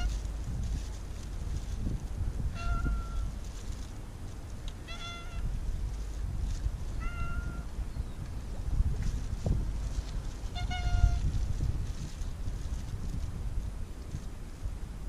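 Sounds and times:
steady low rumble: 0.0s - 15.0s
cat meowing: 2.6s - 3.3s, 4.9s - 5.4s, 7.0s - 7.7s.

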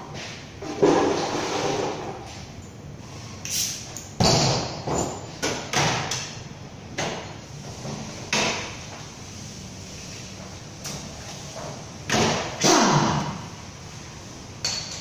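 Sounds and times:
tools knocking and clanking on metal: 4.2s - 6.3s.

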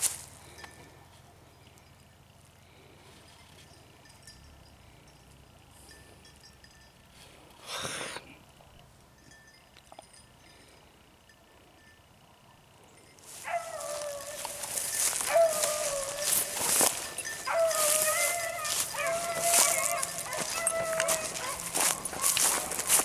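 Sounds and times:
hounds baying: 13.2s - 23.0s.

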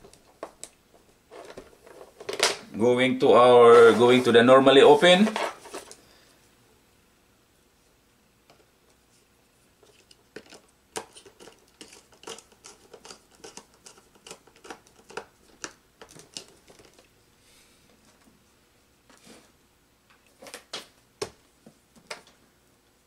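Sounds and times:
wire clicks and rustles: 9.8s - 17.2s.

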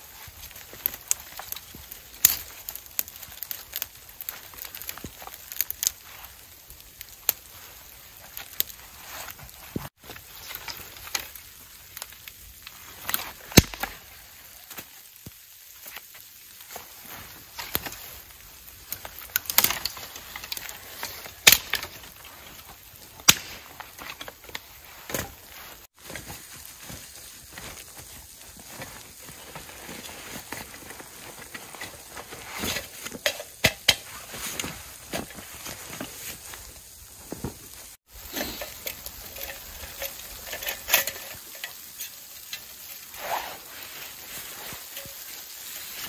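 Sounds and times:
sticks snapping: 18.9s - 22.2s, 22.9s - 25.4s.

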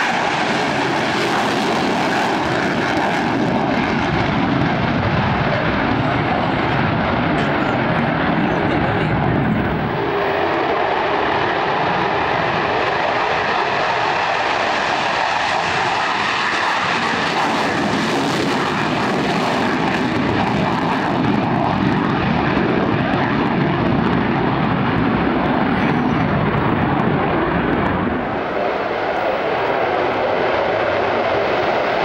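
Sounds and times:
jet engine roaring: 0.0s - 32.0s.

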